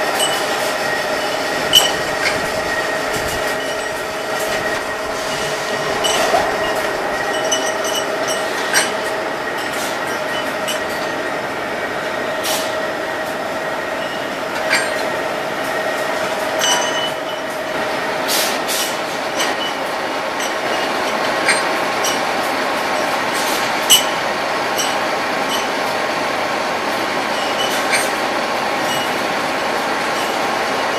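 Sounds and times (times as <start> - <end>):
grinder droning with whine: 0.0 - 13.0
metal rods clinking: 0.2 - 11.2, 16.5 - 17.5, 23.8 - 24.2.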